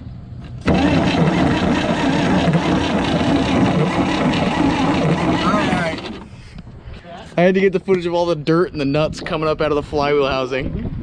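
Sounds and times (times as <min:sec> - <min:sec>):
starter motor cranking engine: 0:00.6 - 0:06.4.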